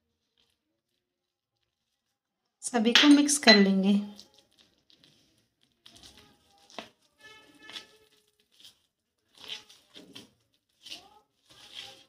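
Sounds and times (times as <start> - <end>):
spoon scraping plastic bowl: 2.8 - 12.0.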